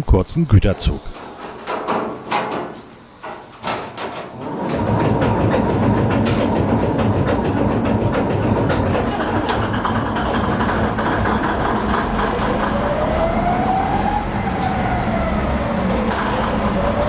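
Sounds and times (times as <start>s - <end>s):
diesel locomotive engine starting: 0.8s - 17.0s.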